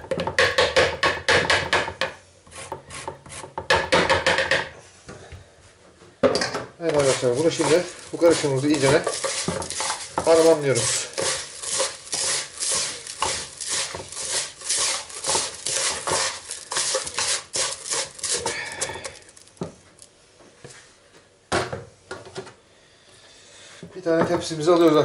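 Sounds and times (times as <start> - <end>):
hands rubbing wet mixture in bowl: 6.8 - 19.6.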